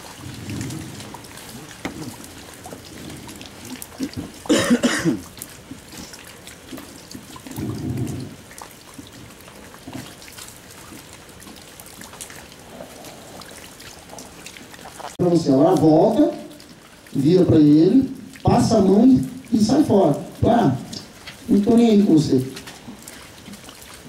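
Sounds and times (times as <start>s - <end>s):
light rain pattering: 0.0s - 24.0s.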